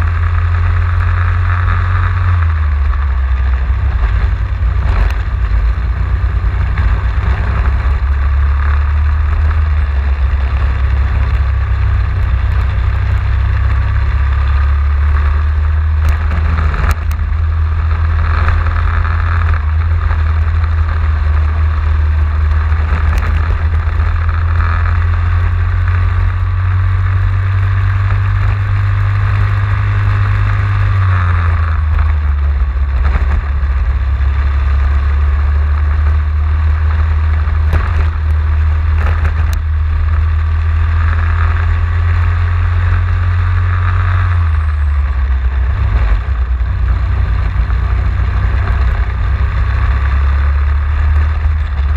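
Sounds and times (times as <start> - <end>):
racing kart engine: 0.0 - 51.9.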